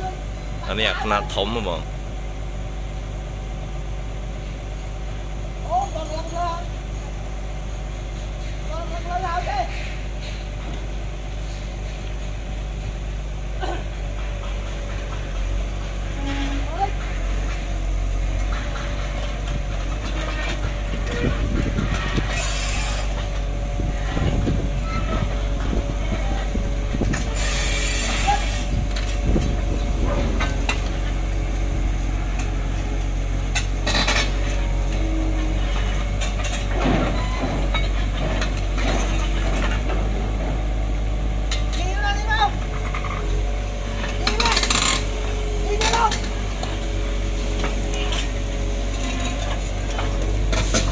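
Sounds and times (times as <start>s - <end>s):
excavator diesel engine idling: 0.0s - 50.9s
steel tracks clanking: 13.7s - 40.8s.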